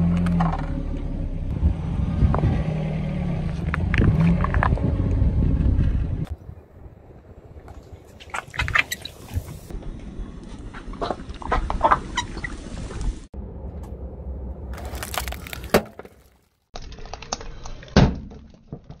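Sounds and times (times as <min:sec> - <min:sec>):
foil balloon crinkling and cracking: 0:14.8 - 0:19.0.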